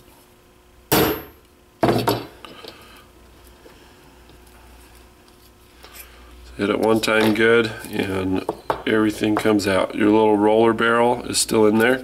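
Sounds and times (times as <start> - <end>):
hammer striking metal punch: 0.9 - 1.4.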